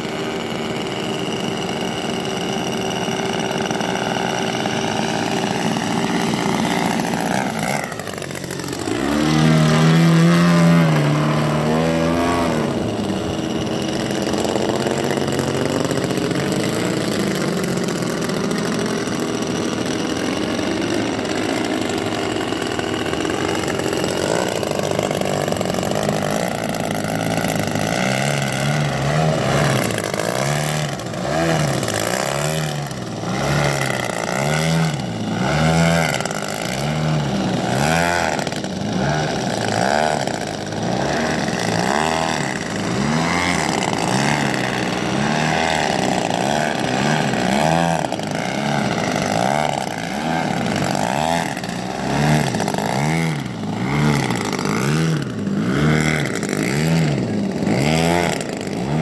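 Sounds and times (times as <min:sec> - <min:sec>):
model plane engine in flight: 0:00.0 - 0:59.0.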